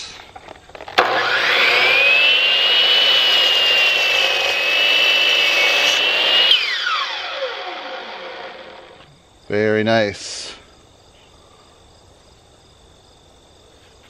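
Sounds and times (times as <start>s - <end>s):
miter saw motor whining: 0.7s - 9.1s
saw blade cutting wood: 0.9s - 9.1s.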